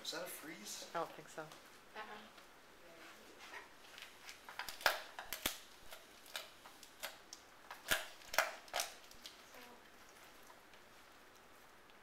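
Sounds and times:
dog chewing with crunching clicks: 4.0s - 9.4s.

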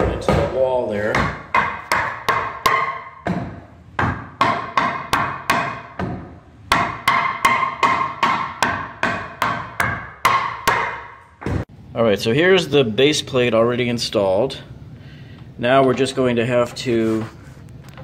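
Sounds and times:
hammer striking wood: 0.0s - 11.7s.

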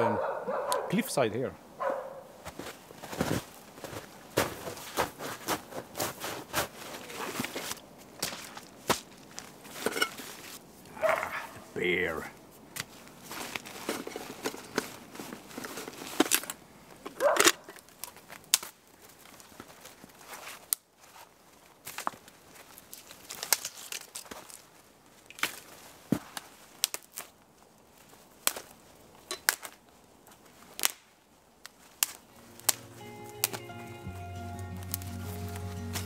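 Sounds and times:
footsteps crunching in snow: 2.4s - 10.6s, 12.9s - 16.2s, 31.8s - 36.0s
dry twigs snapping: 21.8s - 25.7s, 26.3s - 27.4s, 28.0s - 29.9s, 30.6s - 33.7s.

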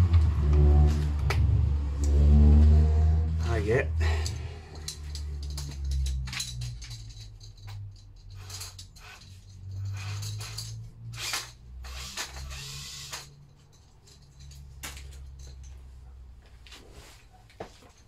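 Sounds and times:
electric drill motor hum: 11.1s - 13.3s.

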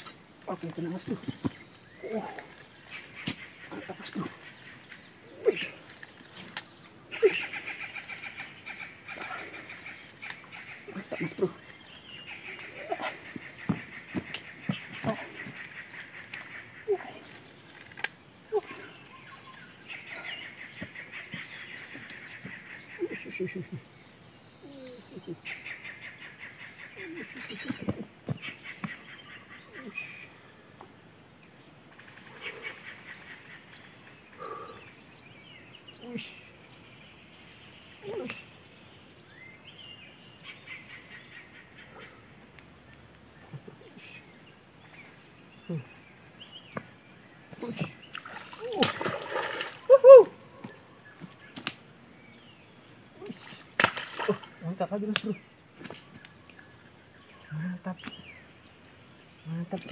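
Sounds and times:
insects buzzing and chirping: 0.0s - 59.9s
sharp click: 51.6s - 51.8s.

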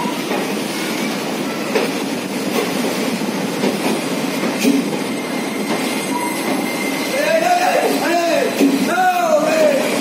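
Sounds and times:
train coaches rolling: 0.0s - 10.0s
wheels clacking over rail joints: 1.6s - 6.7s, 8.5s - 10.0s.

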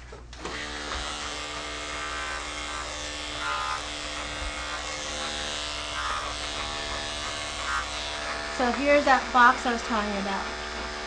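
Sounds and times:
electric clippers buzzing: 0.4s - 11.0s.

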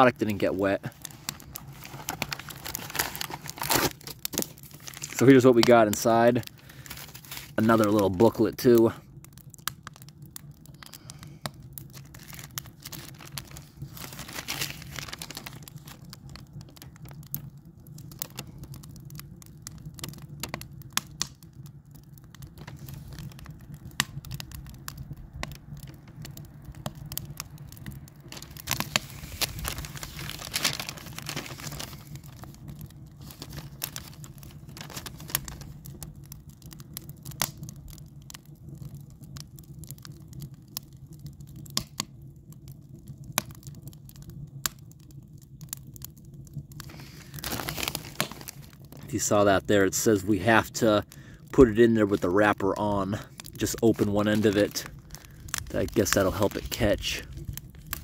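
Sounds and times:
paper booklet rustling: 0.4s - 6.1s, 6.7s - 8.1s, 12.1s - 16.0s, 28.3s - 32.4s, 33.2s - 34.2s, 34.8s - 35.6s, 46.9s - 48.7s, 53.6s - 56.7s.

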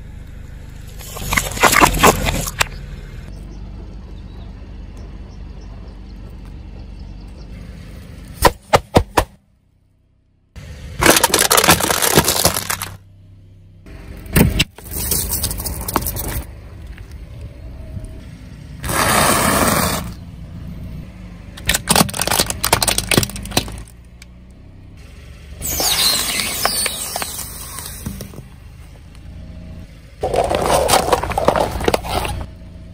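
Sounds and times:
objects crunching under tyre: 0.9s - 2.8s, 11.0s - 13.0s, 14.4s - 17.2s, 18.8s - 20.2s, 21.6s - 24.3s, 25.6s - 28.6s, 30.2s - 32.6s.

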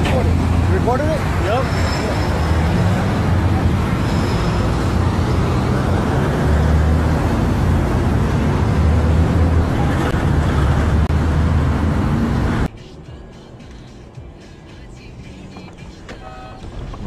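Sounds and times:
car engine and road noise: 0.0s - 17.0s.

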